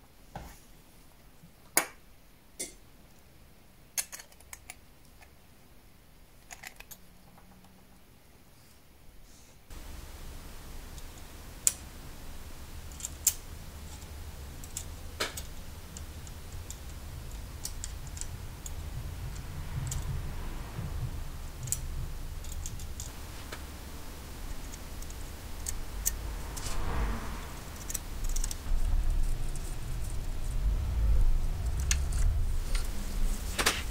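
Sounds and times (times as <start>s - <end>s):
low steady rumble: 9.7s - 33.9s.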